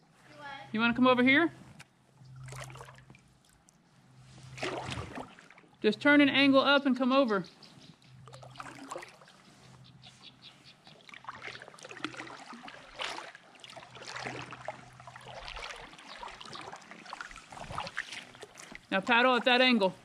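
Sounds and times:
river water splashing and trickling: 1.7 - 5.9, 8.2 - 20.0.

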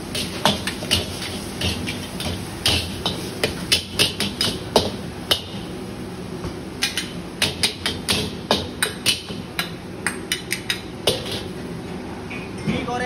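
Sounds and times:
ladle and spatula clanking on wok: 0.1 - 5.7, 6.8 - 11.5.

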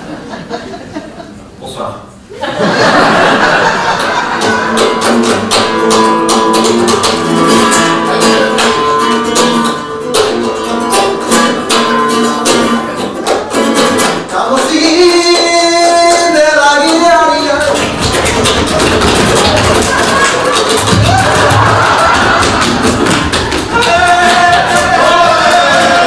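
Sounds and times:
acoustic guitar strumming: 4.2 - 26.0
person singing: 14.3 - 17.8, 23.7 - 26.0.

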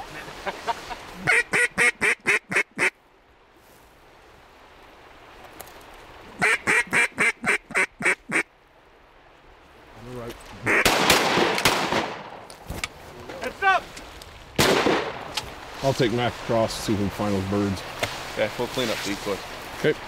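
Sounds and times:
mallard duck quacking: 1.2 - 2.9, 6.4 - 8.5, 10.6 - 10.9.

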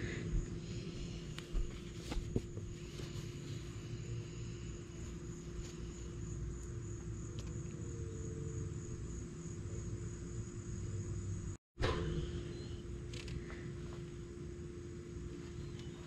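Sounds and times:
faint steady hum: 0.0 - 16.0
insects trilling: 2.8 - 11.6.

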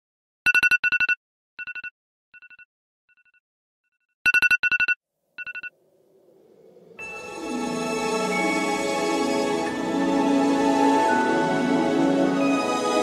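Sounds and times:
phone alarm beeps: 4.3 - 5.7
soft music: 6.4 - 13.0.

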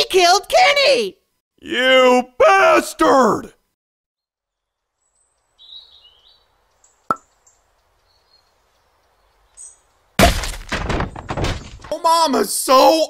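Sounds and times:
faint high bird chirps: 4.2 - 10.1
loud sudden thuds: 10.2 - 11.9.

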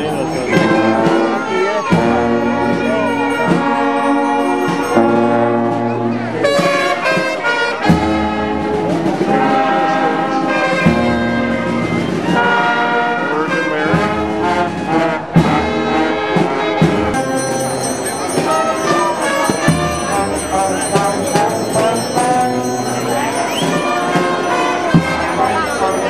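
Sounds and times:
high steady ringing: 0.0 - 5.6, 17.2 - 26.0
brass band playing: 0.0 - 26.0.

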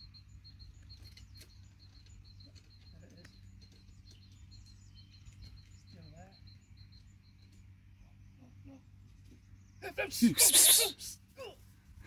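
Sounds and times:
faint high chirps: 0.0 - 8.8.

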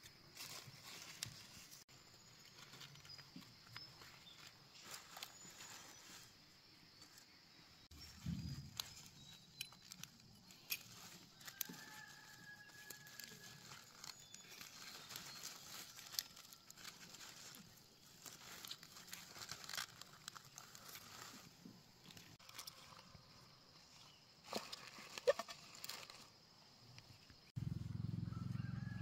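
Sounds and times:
lettuce leaves rustling and snapping: 7.9 - 23.0, 24.4 - 26.3.

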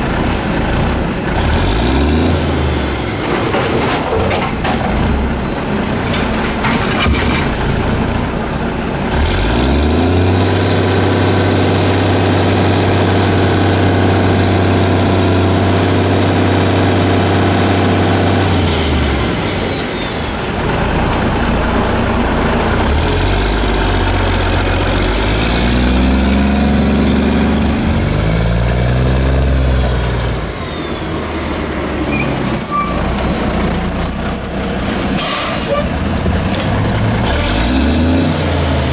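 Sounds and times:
diesel engine revving: 0.0 - 6.7, 7.3 - 38.9.

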